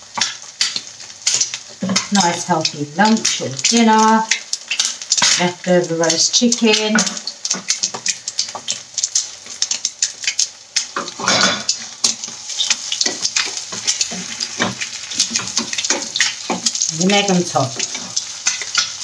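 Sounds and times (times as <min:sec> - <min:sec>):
eggs sizzling in oil: 0:00.0 - 0:19.0
wooden spatula scraping a pan: 0:11.0 - 0:16.8.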